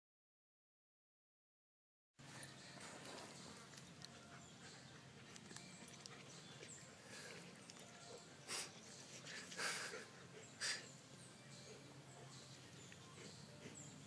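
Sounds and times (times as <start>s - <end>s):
dogs play-fighting: 2.4s - 12.0s, 12.6s - 14.0s
breathy dog noises: 3.1s - 11.9s, 12.6s - 14.0s.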